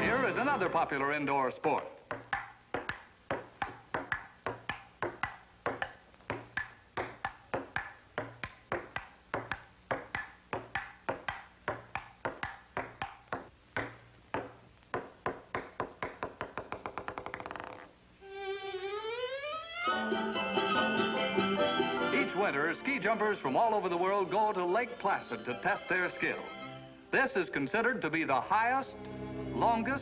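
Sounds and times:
ping-pong ball clicking: 1.7 - 17.9.

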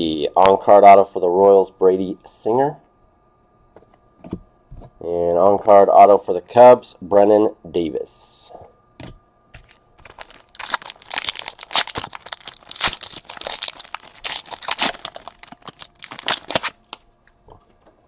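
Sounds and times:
foil wrapper tearing and crinkling: 10.0 - 17.0.

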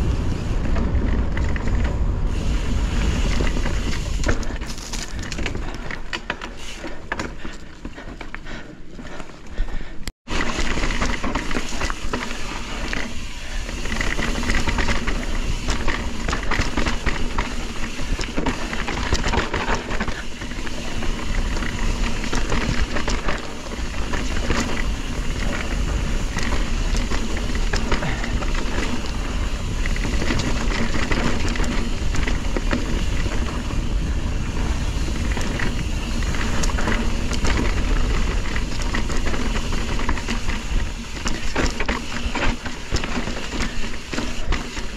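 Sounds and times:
wind on microphone: 0.0 - 6.1
bike clattering and rattling: 0.0 - 44.9
bike tyre noise: 0.0 - 44.9.

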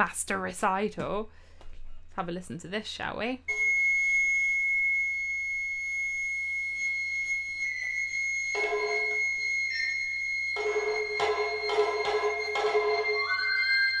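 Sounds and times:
lower recorder tones: 3.5 - 14.0
recorder high note: 3.5 - 14.0.

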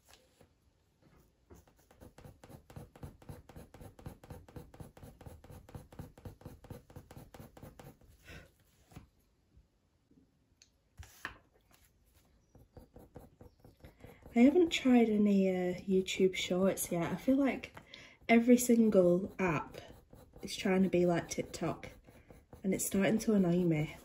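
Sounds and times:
coloured pencil scratching on paper: 1.5 - 8.4, 12.1 - 24.0.

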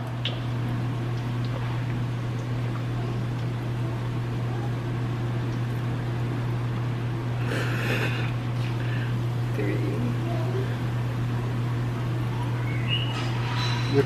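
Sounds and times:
oil bubbling and sizzling: 0.0 - 7.4
steady low hum: 0.0 - 14.0.

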